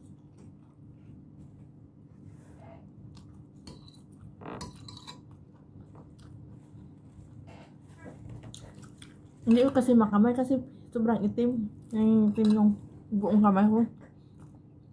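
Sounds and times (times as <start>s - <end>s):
faint chewing: 3.1s - 9.9s.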